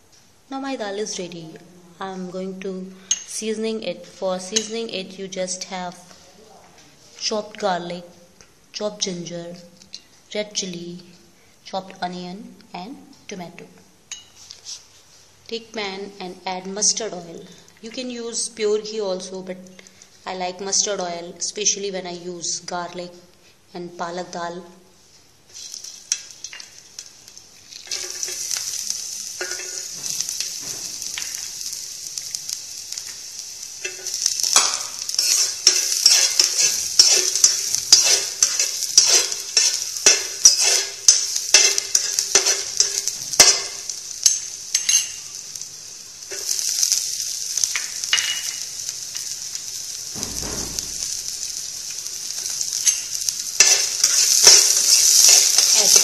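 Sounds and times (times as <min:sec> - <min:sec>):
food sizzling in hot oil: 0:02.2 - 0:06.2, 0:13.9 - 0:23.3, 0:25.1 - 0:56.0.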